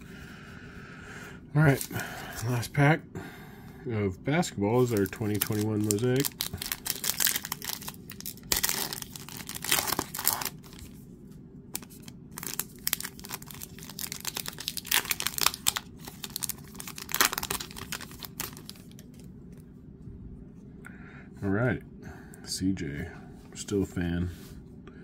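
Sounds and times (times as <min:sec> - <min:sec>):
foil wrapper tearing and crinkling: 0:04.8 - 0:11.0, 0:11.7 - 0:19.2.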